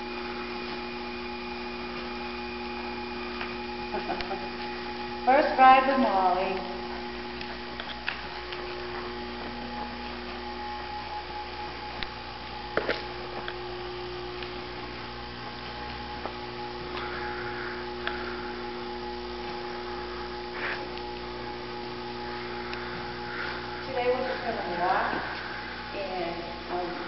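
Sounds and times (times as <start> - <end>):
electrical hum: 0.0 - 27.0.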